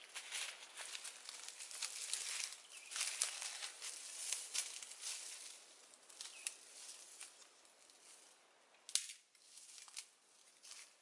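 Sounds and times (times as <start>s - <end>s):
footsteps through dry leaves: 0.0s - 8.4s, 9.4s - 11.0s
twig snapping: 6.1s - 6.6s, 8.8s - 10.1s.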